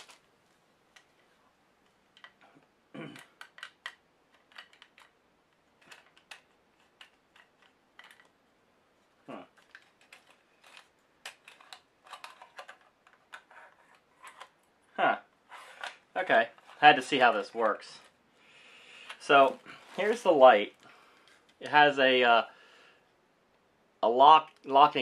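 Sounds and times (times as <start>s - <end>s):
plastic and metal parts clicking: 2.1s - 8.4s, 9.5s - 14.6s.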